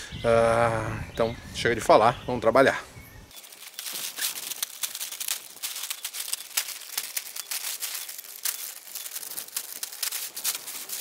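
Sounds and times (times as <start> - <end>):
plastic sheeting crinkling: 3.3 - 11.0.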